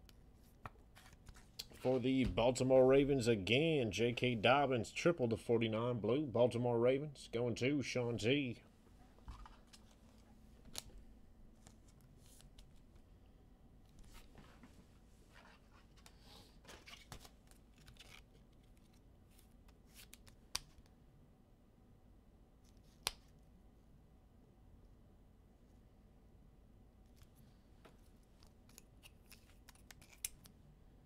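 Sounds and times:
cards and packaging rustling: 0:00.5 - 0:02.2, 0:15.3 - 0:20.8, 0:28.0 - 0:30.5.

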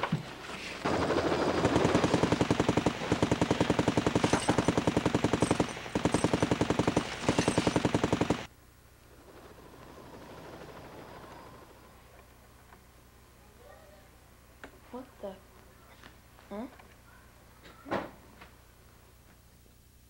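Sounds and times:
machine-gun fire: 0:00.8 - 0:08.5.

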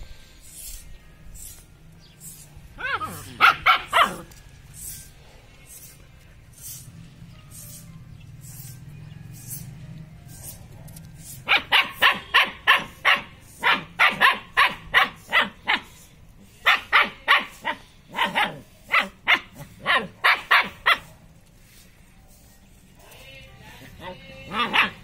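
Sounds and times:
puppy barking high-pitched: 0:02.8 - 0:04.3, 0:10.8 - 0:16.0, 0:16.6 - 0:21.2, 0:24.5 - 0:25.0.

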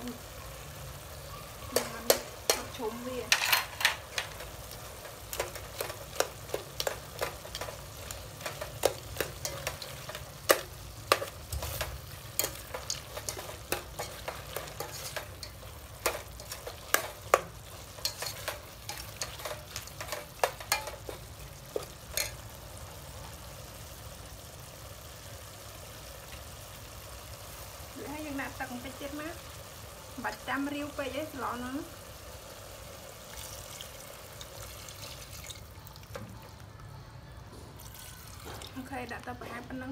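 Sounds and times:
meat sizzling: 0:00.0 - 0:39.9
metal ladle scraping pot: 0:05.3 - 0:21.2.

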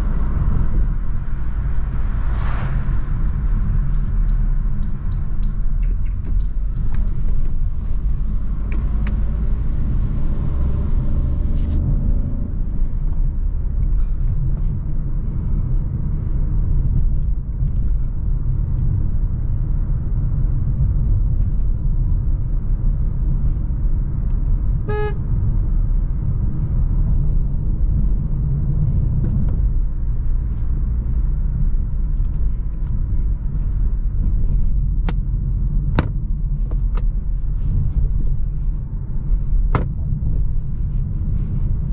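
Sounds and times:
car road and engine rumble: 0:00.0 - 0:41.9
car horn toot: 0:24.8 - 0:25.2.

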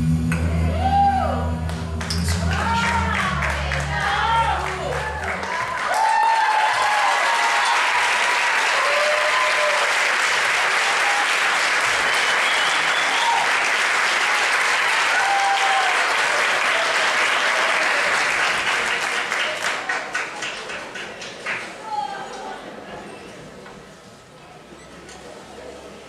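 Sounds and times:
backing music: 0:00.0 - 0:05.7
cheers and shouts: 0:00.4 - 0:18.3
audience applauding: 0:01.7 - 0:22.0.

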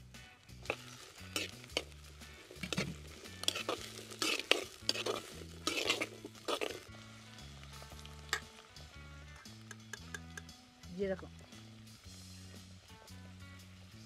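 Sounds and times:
food sizzling in oil: 0:00.0 - 0:14.0
spatula scraping a clay pot: 0:00.7 - 0:01.9, 0:02.6 - 0:06.8.

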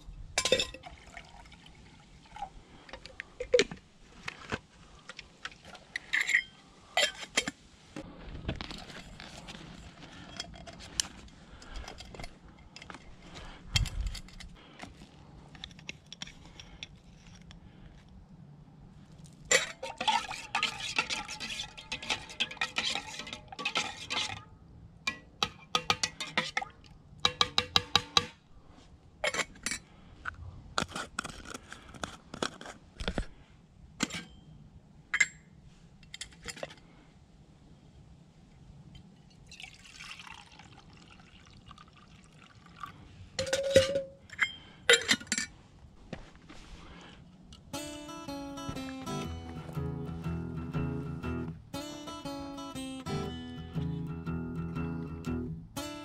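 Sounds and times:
metal utensil clinking in pot: 0:00.4 - 0:00.8, 0:19.5 - 0:24.4, 0:25.1 - 0:28.3.

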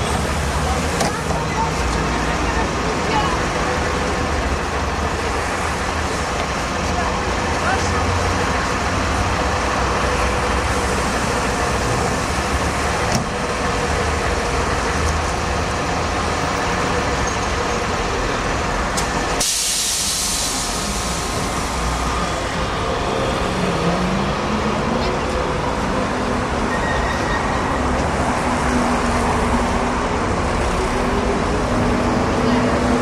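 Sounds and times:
street traffic noise: 0:00.0 - 0:33.0
compressed air hiss from bus: 0:19.3 - 0:21.9.

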